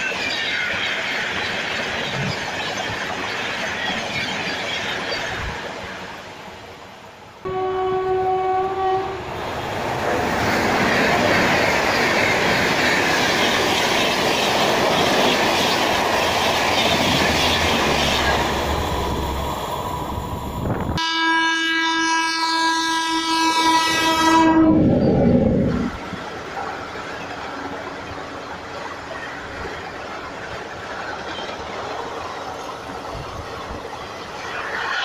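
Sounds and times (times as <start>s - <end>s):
locomotive horn: 7.4s - 9.4s, 21.0s - 25.0s
train coaches rushing past: 8.3s - 21.2s, 23.2s - 35.0s.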